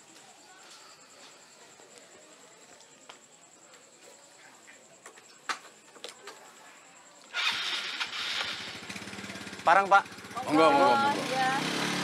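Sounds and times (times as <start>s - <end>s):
scooter engine starting and idling: 7.3s - 12.0s.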